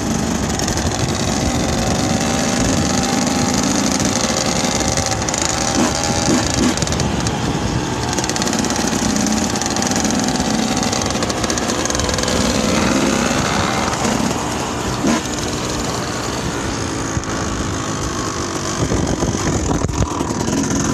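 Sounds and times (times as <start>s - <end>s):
dirt bike engines: 0.0s - 20.9s.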